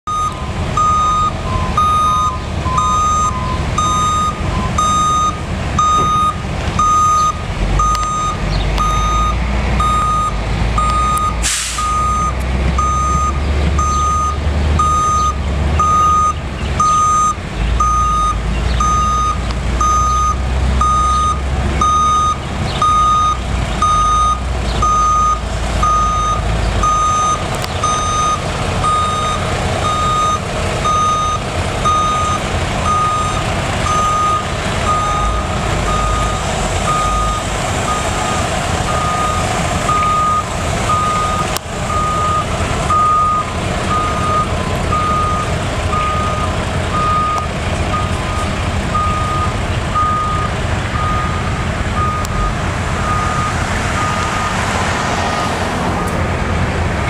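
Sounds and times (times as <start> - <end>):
truck reversing alarm beeping: 0.0 - 54.7
truck engine rumble: 0.0 - 57.0
lower faster beeper: 0.1 - 48.4, 49.0 - 54.6
air brake hiss: 11.4 - 12.0.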